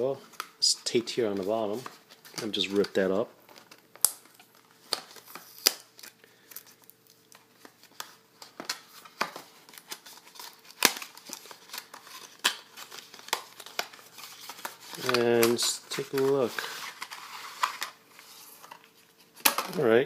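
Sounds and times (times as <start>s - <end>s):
cardboard and tape crinkling: 0.1s - 19.9s.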